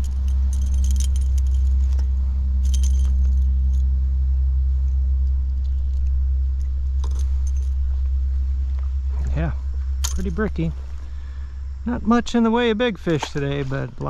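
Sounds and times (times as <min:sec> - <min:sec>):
light metallic jingles: 0:00.0 - 0:03.9, 0:06.7 - 0:14.0
steady low rumble: 0:00.0 - 0:14.0.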